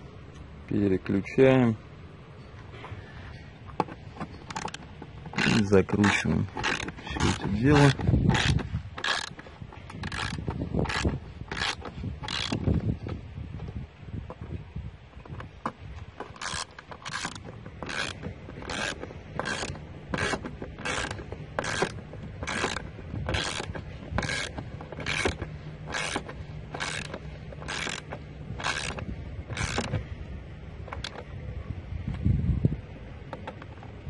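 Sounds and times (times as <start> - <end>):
ratchet wrench clicking: 4.4 - 12.8, 16.4 - 30.0.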